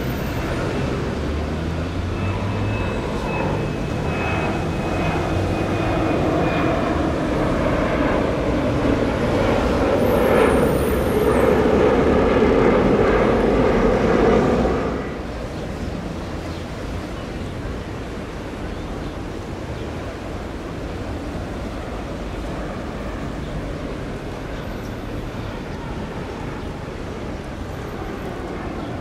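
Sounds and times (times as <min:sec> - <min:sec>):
jet airliner climbing: 0:00.0 - 0:29.0.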